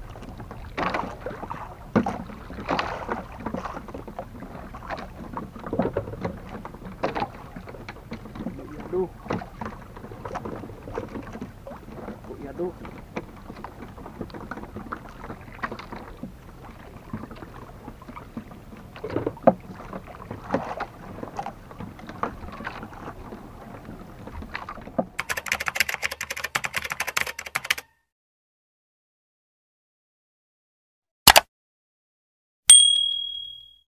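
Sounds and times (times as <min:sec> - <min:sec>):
water lapping against boat hull: 0:00.0 - 0:25.2
typewriter clicks sound effect: 0:25.2 - 0:27.9, 0:31.3 - 0:31.5.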